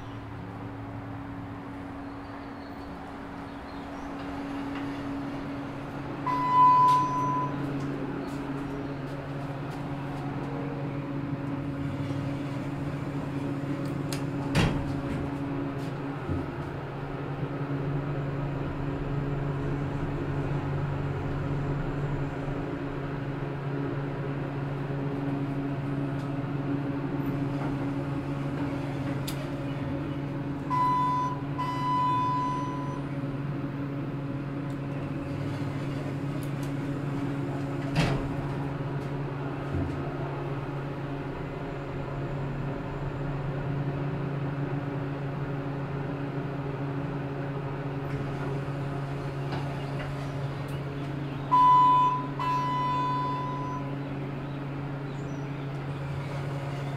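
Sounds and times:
low machine hum: 0:00.0 - 0:56.9
two-part electronic beep: 0:06.3 - 0:07.6, 0:51.5 - 0:53.8.

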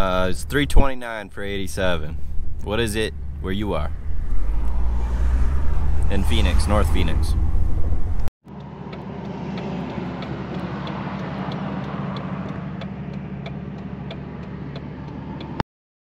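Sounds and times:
car engine hum: 0:00.0 - 0:15.6
road noise: 0:00.0 - 0:15.6.

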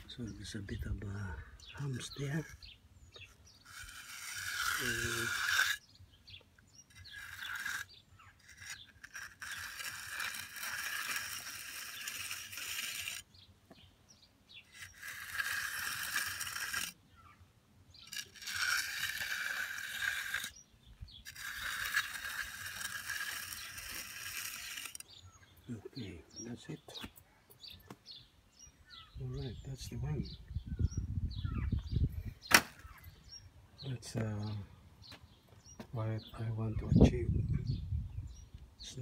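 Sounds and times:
hand edger scraping wet concrete: 0:00.0 - 0:13.4, 0:14.6 - 0:17.4, 0:18.0 - 0:25.8.

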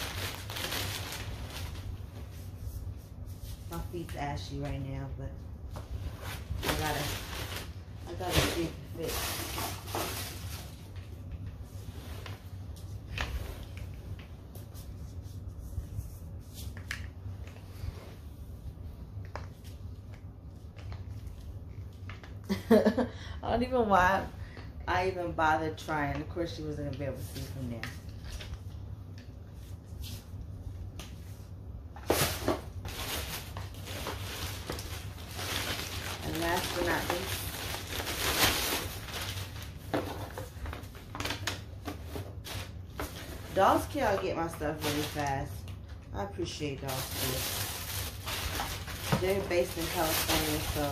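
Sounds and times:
plastic packaging rustling: 0:00.0 - 0:02.3, 0:06.0 - 0:11.2, 0:32.0 - 0:50.9
low steady hum: 0:00.0 - 0:50.9.

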